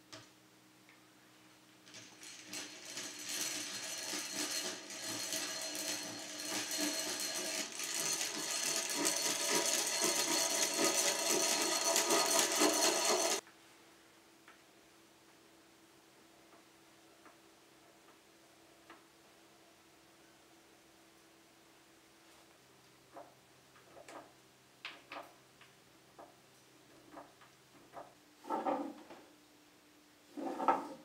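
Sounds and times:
hand drill gears whirring: 1.8s - 13.4s.

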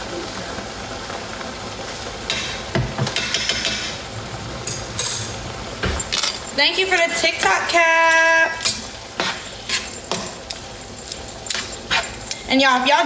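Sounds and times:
meat sauce sizzling: 0.0s - 13.0s
utensil scraping pot: 8.1s - 12.5s.

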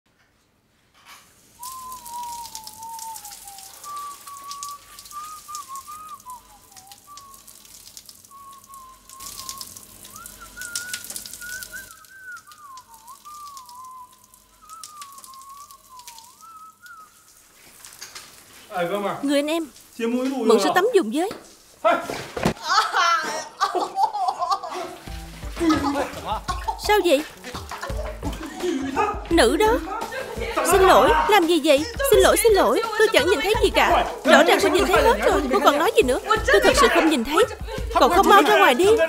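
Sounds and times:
running water hiss: 1.0s - 22.4s, 24.1s - 39.0s
water splashing and crackling: 1.0s - 22.6s, 24.8s - 28.8s
person whistling a tune: 1.6s - 7.6s, 8.3s - 17.3s, 29.4s - 29.8s, 30.5s - 39.0s.

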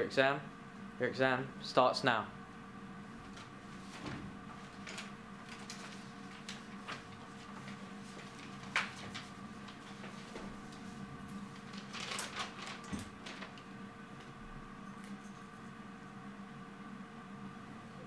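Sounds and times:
steady low hum: 0.0s - 18.0s
paper rustling: 3.3s - 13.8s.

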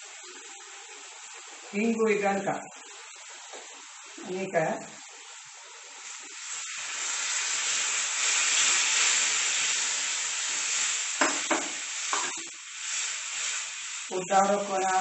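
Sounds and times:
food sizzling in a pan: 0.0s - 15.0s.

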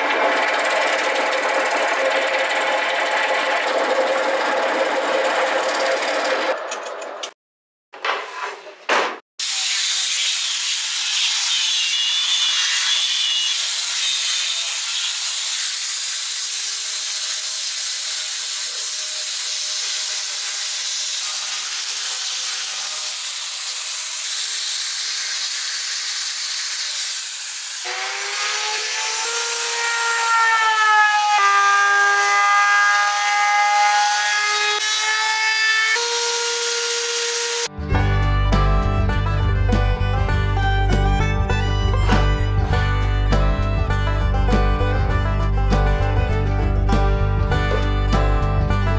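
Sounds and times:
power tool motor whine: 15.6s - 37.8s.

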